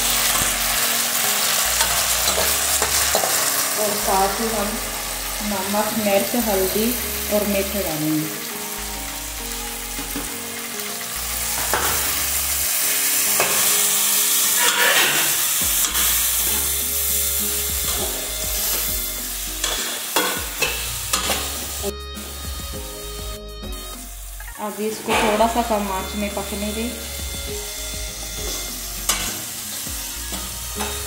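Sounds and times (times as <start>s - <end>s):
metal ladle scraping pan: 0.0s - 5.5s, 9.9s - 17.2s, 19.5s - 21.9s, 28.2s - 31.0s
food sizzling in oil: 0.0s - 31.0s.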